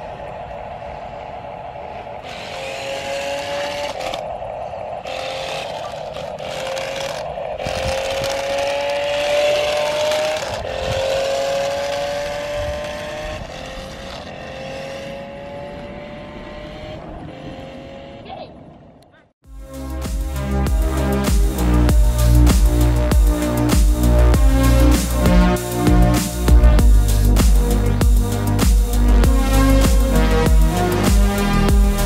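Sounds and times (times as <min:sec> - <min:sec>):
toy electric motor whining: 0:02.2 - 0:14.3
wheels scraping on concrete: 0:02.2 - 0:18.2.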